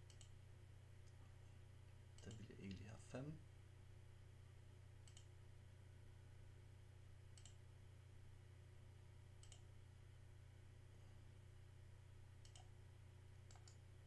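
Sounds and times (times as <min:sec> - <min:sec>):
faint computer mouse clicks: 0:00.0 - 0:00.3, 0:05.0 - 0:05.3, 0:07.3 - 0:07.6, 0:09.4 - 0:09.7, 0:12.4 - 0:12.7, 0:13.4 - 0:13.8
steady low hum: 0:00.0 - 0:14.0.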